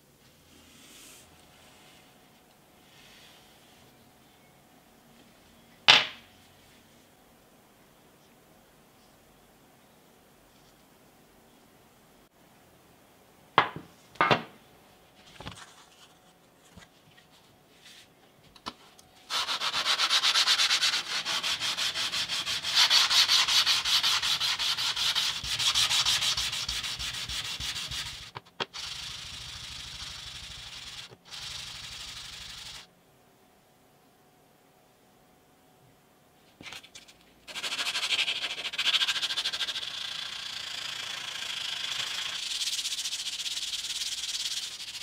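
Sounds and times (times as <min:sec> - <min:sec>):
metal bar sanding on sandpaper: 0:19.3 - 0:32.9, 0:37.5 - 0:45.0.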